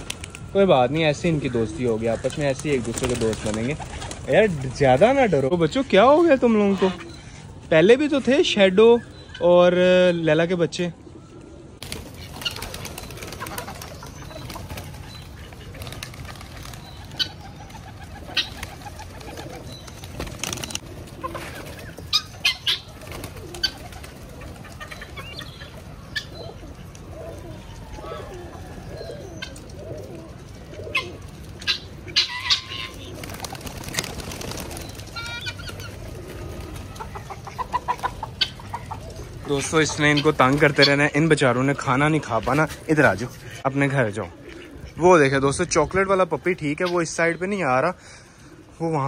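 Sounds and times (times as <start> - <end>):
wings clapping and flapping: 0.0 - 0.5, 2.2 - 4.7, 11.8 - 25.9, 30.9 - 39.3
pigeons cooing: 10.6 - 49.0.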